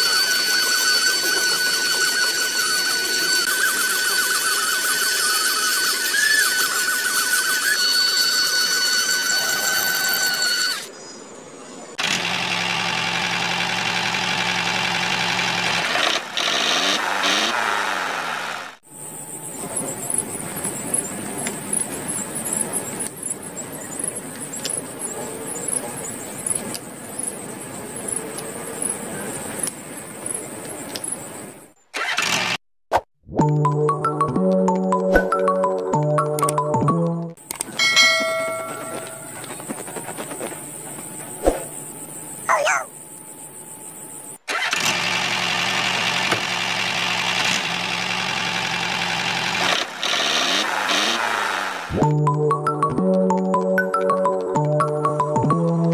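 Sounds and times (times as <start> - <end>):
toy tractor motor humming: 0.0 - 11.0, 12.0 - 31.3, 44.4 - 52.0.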